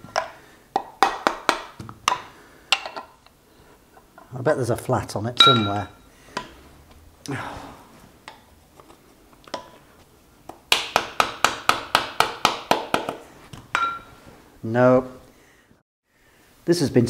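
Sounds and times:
ringing metal taps: 5.4s - 6.0s.

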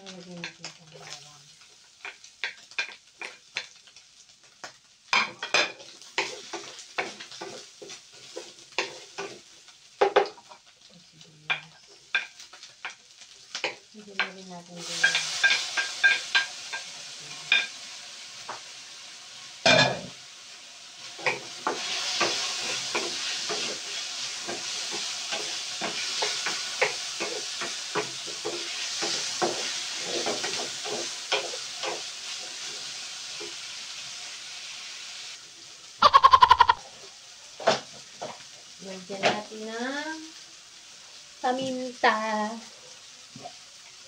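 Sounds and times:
meat sizzling in a frying pan: 0.0s - 44.0s
spatula clacking and scraping pan: 2.0s - 4.0s, 4.6s - 10.8s, 11.5s - 17.8s, 21.2s - 32.7s.

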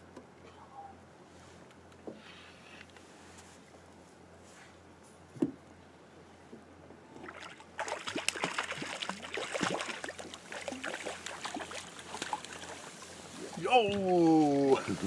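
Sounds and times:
fish splashing in water: 7.2s - 14.2s.

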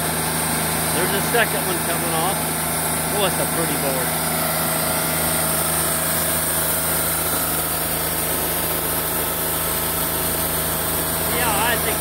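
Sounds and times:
sawmill engine running: 0.0s - 12.0s.

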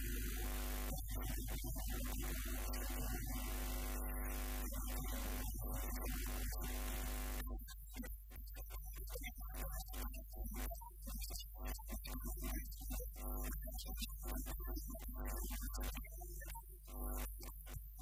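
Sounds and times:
electrical mains hum: 0.0s - 1.2s, 1.9s - 7.5s.

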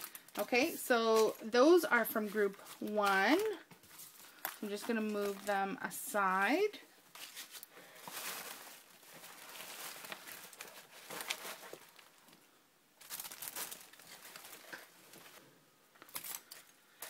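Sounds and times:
paper rustling and crinkling: 1.1s - 5.7s, 7.1s - 12.4s, 13.0s - 15.4s.

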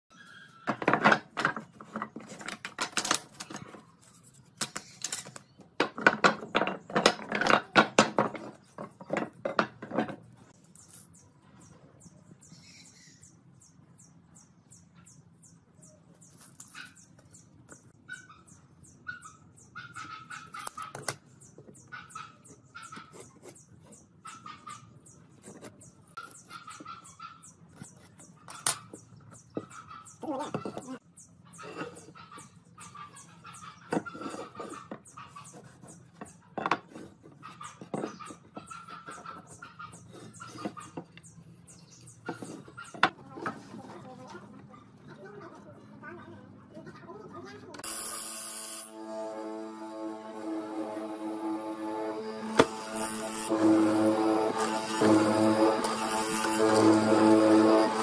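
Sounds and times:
light handling and marking sounds: 1.4s - 5.6s, 25.1s - 27.0s
wooden boards clattering: 5.8s - 10.3s.

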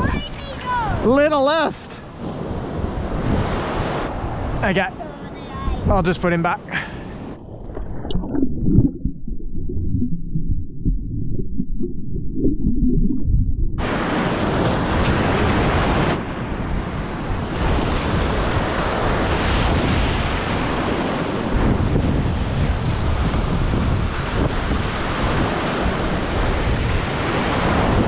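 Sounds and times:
wind buffeting microphone: 0.0s - 1.1s, 2.0s - 6.3s, 7.0s - 28.0s
waves breaking on shore: 0.0s - 8.2s, 13.8s - 28.0s
muffled underwater surf rumble: 6.6s - 18.7s.

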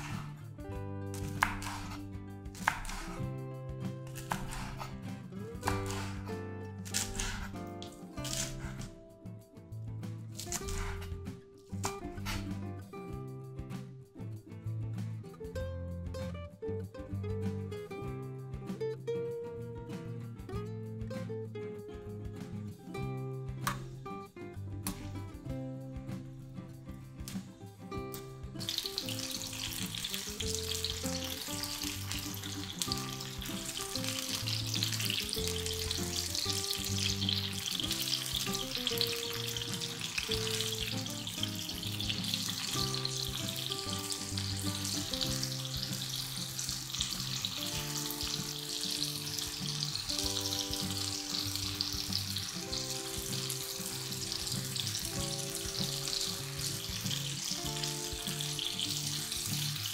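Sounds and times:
food sizzling in frying pan: 0.0s - 0.4s, 1.2s - 3.2s, 4.1s - 4.9s, 5.7s - 6.3s, 28.6s - 59.9s
background music: 0.0s - 59.9s.

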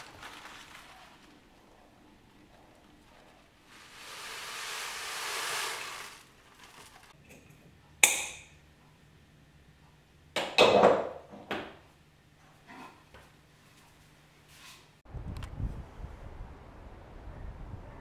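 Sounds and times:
granola pouring into jar: 3.7s - 7.2s.

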